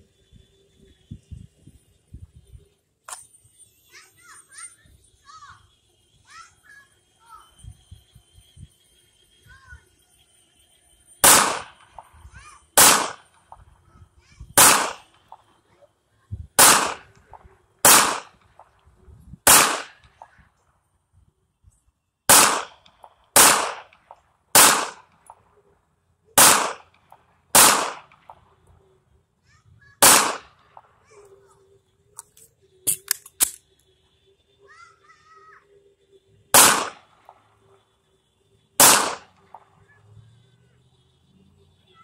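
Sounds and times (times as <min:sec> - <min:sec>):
pistol shots with echo: 0:11.2 - 0:11.8, 0:12.8 - 0:13.3, 0:14.6 - 0:15.4, 0:16.6 - 0:18.4, 0:19.5 - 0:20.2, 0:22.3 - 0:22.8, 0:23.4 - 0:25.2, 0:26.4 - 0:28.4, 0:30.0 - 0:30.9, 0:36.5 - 0:37.4, 0:38.8 - 0:39.6.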